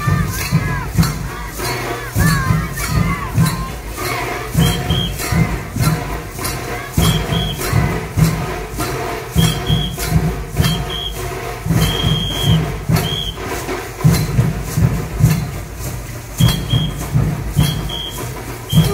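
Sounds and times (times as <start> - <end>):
drum beat: 0.0 - 18.9
whistle blasts: 4.5 - 5.6, 7.0 - 7.9, 9.3 - 13.6, 16.4 - 18.9.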